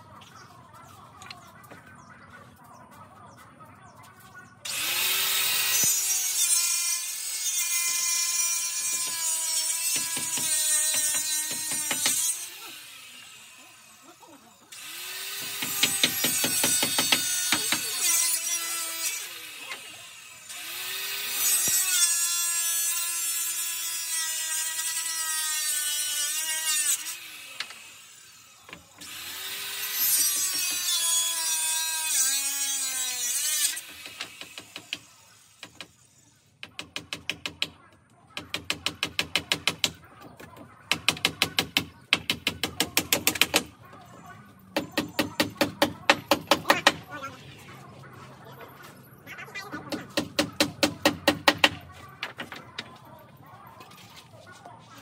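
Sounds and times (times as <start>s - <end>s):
electric saw cutting wood: 4.7s - 35.8s.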